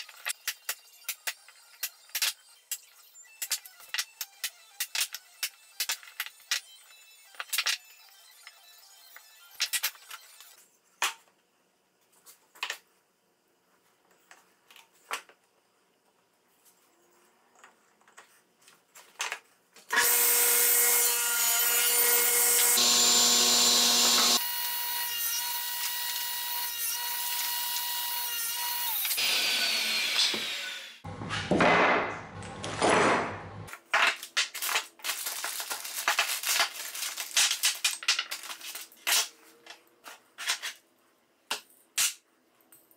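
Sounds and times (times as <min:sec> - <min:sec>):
table saw whining: 0:19.9 - 0:31.2.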